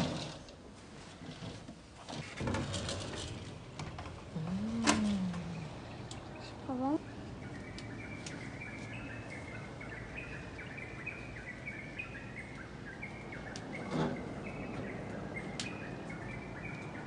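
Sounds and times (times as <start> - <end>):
small birds chirping: 4.3 - 17.0.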